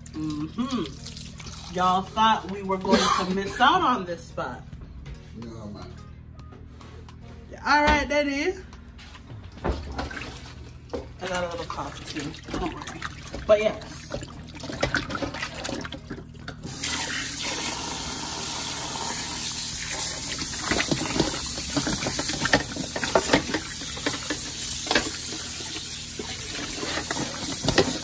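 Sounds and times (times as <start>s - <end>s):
tap water running into steel bowl: 10.9s - 28.0s
water splashing: 11.3s - 16.3s.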